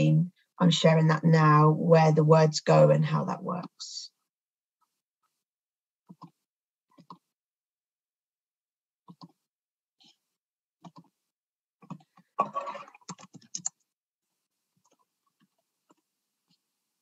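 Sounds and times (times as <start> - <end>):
computer mouse clicking: 6.1 - 7.3, 9.1 - 9.4, 10.8 - 11.1, 13.0 - 13.8, 14.8 - 16.0.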